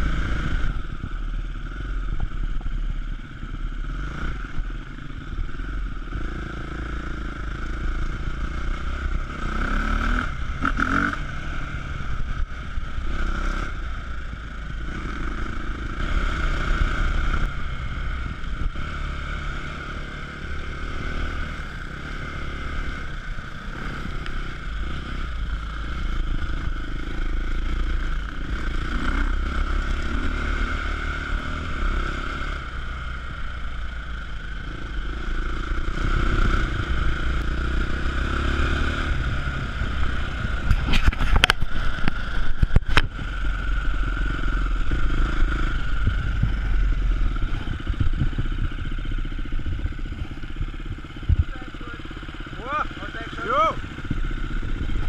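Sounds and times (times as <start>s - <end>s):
motorcycle engine revving: 0.0s - 55.0s
motorcycle knocks and rattles: 2.0s - 3.0s, 40.4s - 43.7s, 44.8s - 51.7s.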